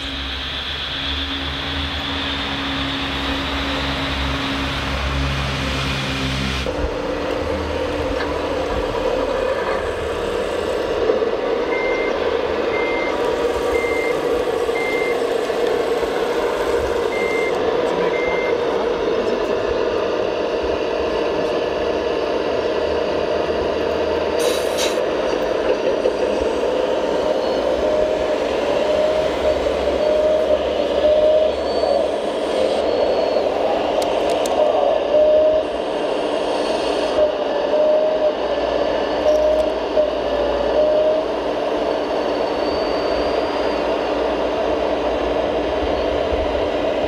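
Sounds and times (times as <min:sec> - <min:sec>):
hydraulic pump whining: 0:06.7 - 0:19.6
electronic reversing beeper: 0:11.6 - 0:18.8, 0:26.3 - 0:35.8, 0:39.2 - 0:44.4.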